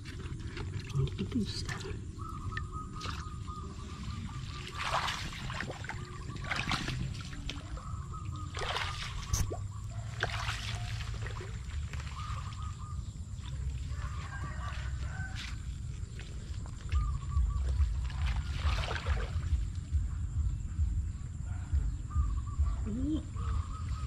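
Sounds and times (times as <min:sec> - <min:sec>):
shallow water splashing: 0:00.0 - 0:19.8
steady low rumble: 0:11.0 - 0:24.0.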